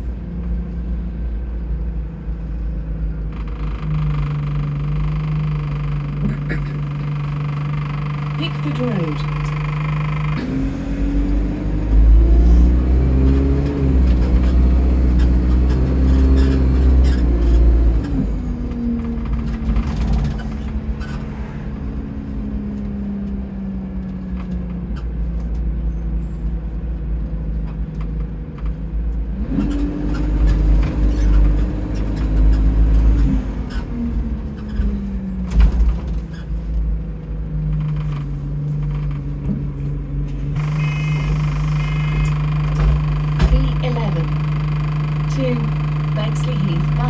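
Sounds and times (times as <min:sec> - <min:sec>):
diesel bus engine pulling: 0:00.0 - 0:47.0
faint high turbo whistle: 0:40.6 - 0:42.7.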